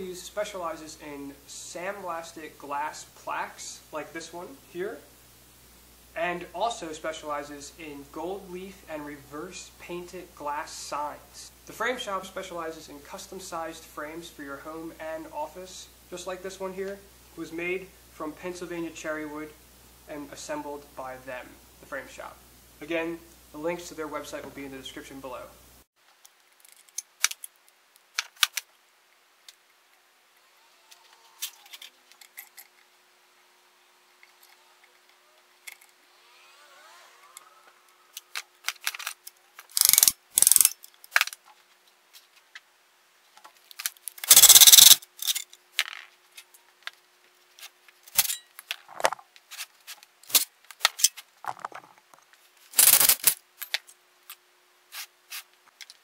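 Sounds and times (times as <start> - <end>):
harsh metal noises: 39.7 - 40.8, 44.2 - 45.4.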